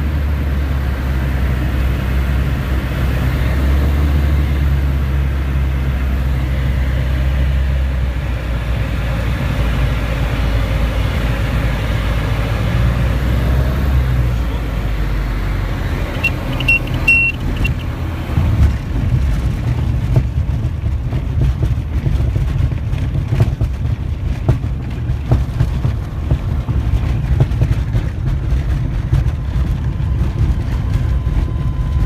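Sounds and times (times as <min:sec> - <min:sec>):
aircraft piston engine and propeller: 0:00.0 - 0:32.0
short high beeps: 0:16.1 - 0:17.9
knocks and rattles: 0:16.1 - 0:31.5.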